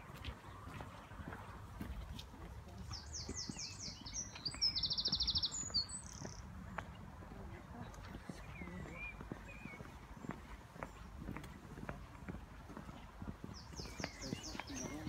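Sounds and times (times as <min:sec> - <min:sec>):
songbird singing trill: 0:03.0 - 0:07.0, 0:08.3 - 0:10.5, 0:13.5 - 0:15.0.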